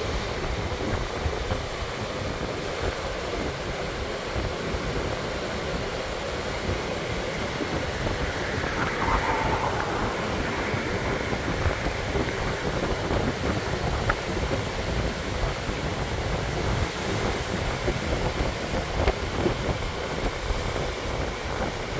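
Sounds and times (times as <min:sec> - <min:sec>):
wind rumbling on microphone: 0:00.0 - 0:21.9
sea surf breaking: 0:05.6 - 0:16.7.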